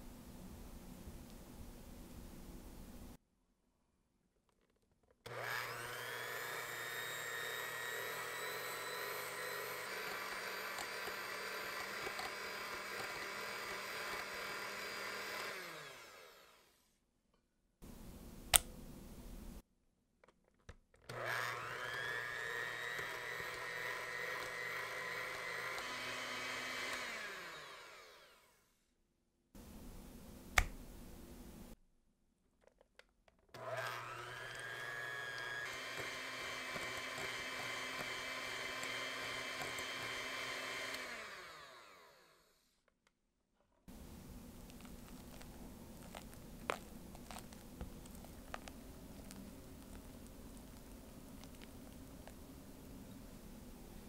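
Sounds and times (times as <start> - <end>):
electric hand mixer whining: 5.3 - 16.8, 21.1 - 28.7, 33.6 - 42.6.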